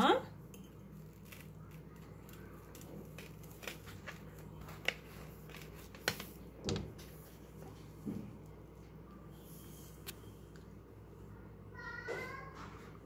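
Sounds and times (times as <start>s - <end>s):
low room hum: 0.0s - 13.0s
toasted bread crackling: 0.8s - 6.3s.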